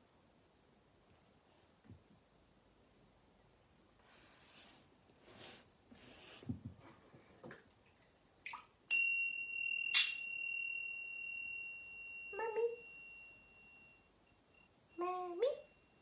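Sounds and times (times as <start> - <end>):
hand bell ringing: 8.9 - 14.1.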